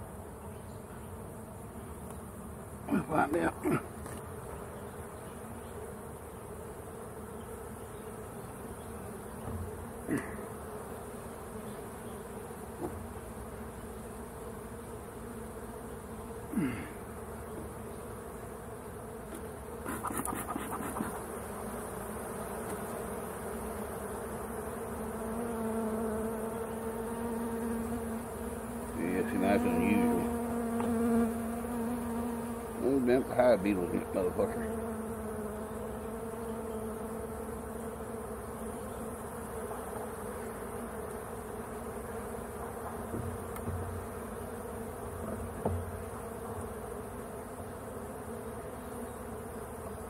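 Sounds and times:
honeybees buzzing: 0.0s - 50.0s
knocks of wooden hive frames: 9.4s - 10.4s, 12.7s - 13.2s, 30.0s - 32.8s, 42.5s - 44.2s, 45.1s - 46.6s.

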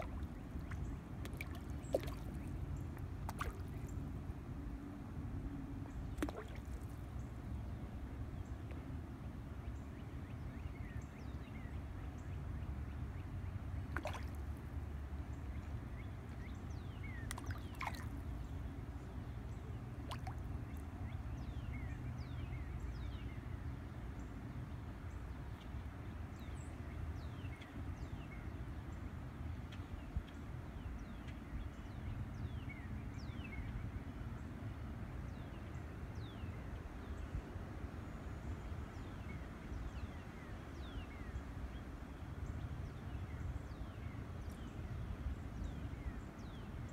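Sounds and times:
small splashes: 0.0s - 2.6s, 3.2s - 3.9s, 6.1s - 7.0s, 13.9s - 14.5s, 17.2s - 18.2s, 20.0s - 20.4s.

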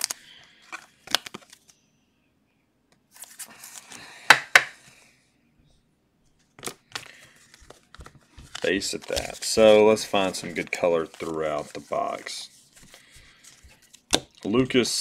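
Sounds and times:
plastic rustling and scraping: 6.4s - 14.6s.

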